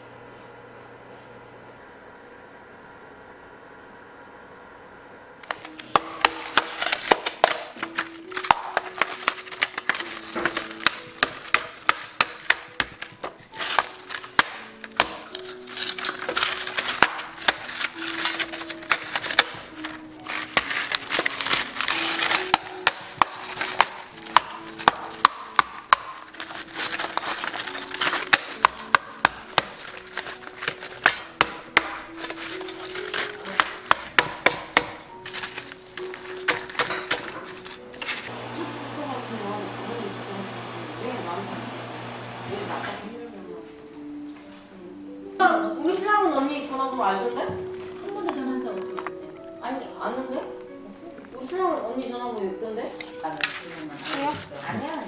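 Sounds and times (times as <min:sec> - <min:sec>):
mallet smashing toffee: 0:05.4 - 0:38.3
shards crunching and rattling: 0:05.4 - 0:38.3, 0:52.9 - 0:55.0
light background music: 0:05.4 - 0:55.0.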